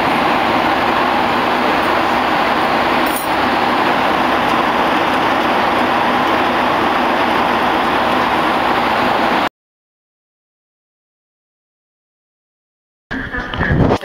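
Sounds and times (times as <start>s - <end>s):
airliner cabin noise: 0.0s - 9.5s, 13.1s - 14.0s.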